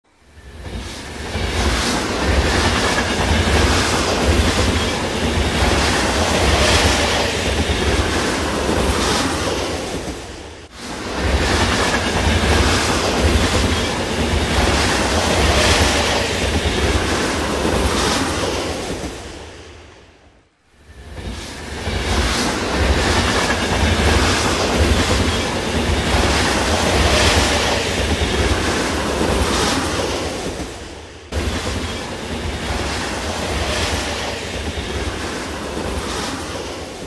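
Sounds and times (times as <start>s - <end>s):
train wheels rumbling on track: 0.1s - 19.9s, 20.7s - 37.0s.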